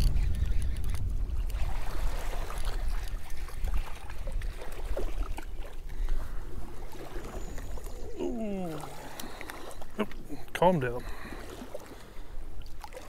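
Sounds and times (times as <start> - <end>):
wind buffeting microphone: 0.0 - 8.7
small waves lapping: 0.4 - 13.0.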